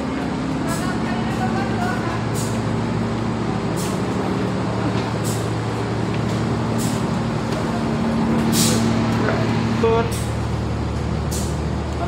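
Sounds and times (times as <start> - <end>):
moving walkway machine hum: 0.0 - 12.0.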